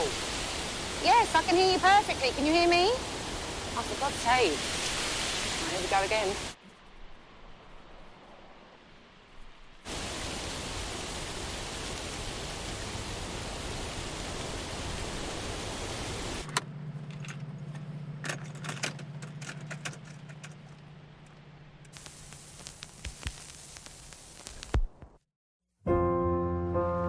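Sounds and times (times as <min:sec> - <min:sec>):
steady rush of noise: 0:00.0 - 0:16.5, 0:20.9 - 0:25.2
low steady hum: 0:12.4 - 0:24.6.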